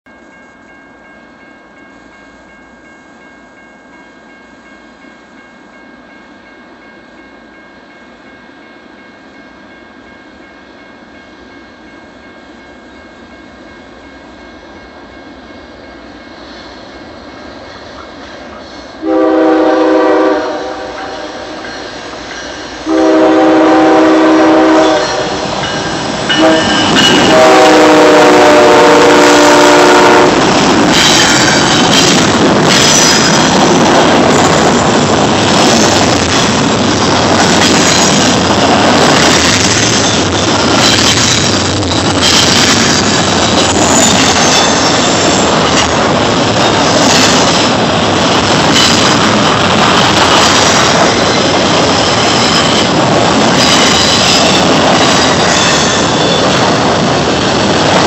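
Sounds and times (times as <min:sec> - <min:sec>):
train locomotive rumble: 0:00.1 - 0:58.0
train air horn blasts: 0:18.9 - 0:22.0, 0:22.8 - 0:25.6, 0:26.3 - 0:30.5.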